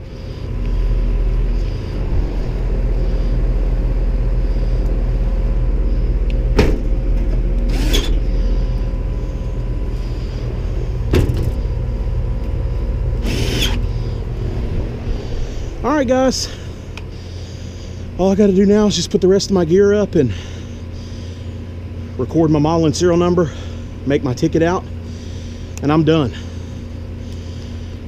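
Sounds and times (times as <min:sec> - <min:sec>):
air conditioner unit humming: 0:00.0 - 0:28.0
cordless drill driving screws: 0:07.7 - 0:08.2, 0:13.2 - 0:13.8.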